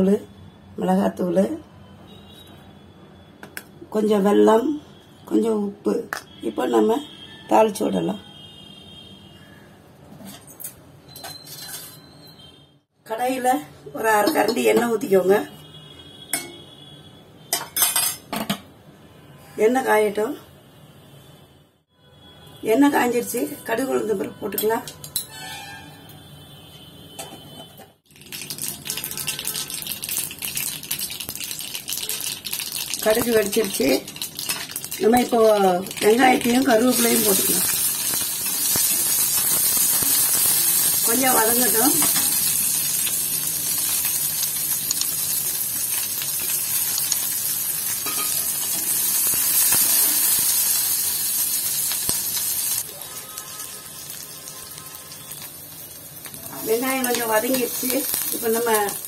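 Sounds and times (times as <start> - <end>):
mustard seeds crackling and popping: 28.1 - 52.9, 55.3 - 59.0
seeds sizzling in hot oil: 28.1 - 59.0.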